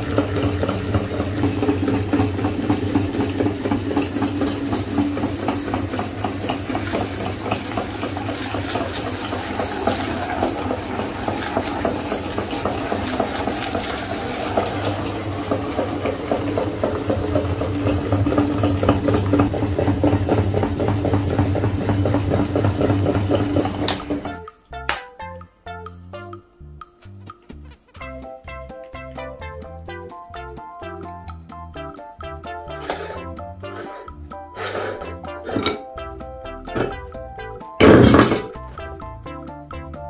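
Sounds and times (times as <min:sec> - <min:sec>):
electric meat grinder running: 0:00.0 - 0:24.4, 0:32.8 - 0:35.8.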